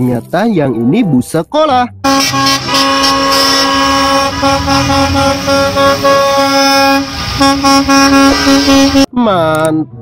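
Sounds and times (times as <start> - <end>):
bus horns blasting: 2.0 - 9.1.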